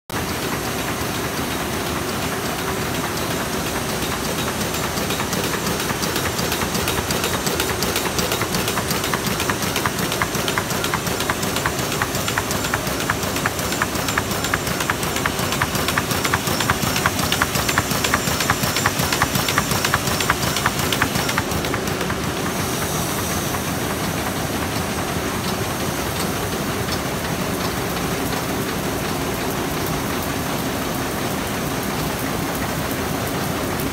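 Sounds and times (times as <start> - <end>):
rapid clicking of sheet feed: 0.1 - 33.9
printing press mechanical whir: 0.2 - 33.9.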